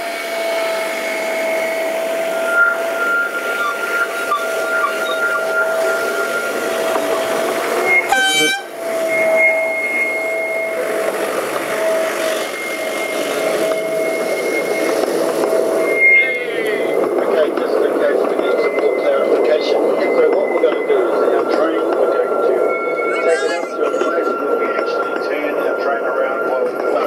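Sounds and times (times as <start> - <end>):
train running along track: 0.0 - 27.0
train horn blast: 5.4 - 14.7.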